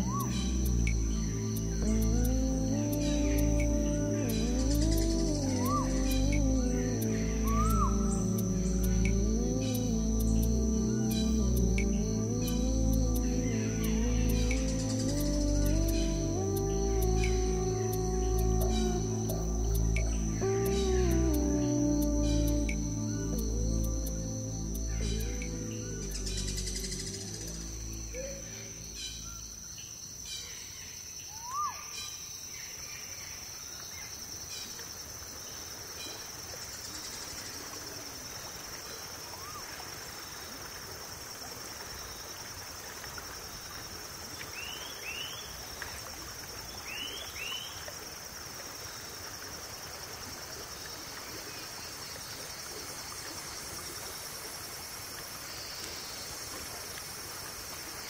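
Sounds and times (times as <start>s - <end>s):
bird calls: 0.0s - 1.4s, 3.1s - 10.4s
background hiss: 0.0s - 58.0s
insect trill: 0.0s - 58.0s.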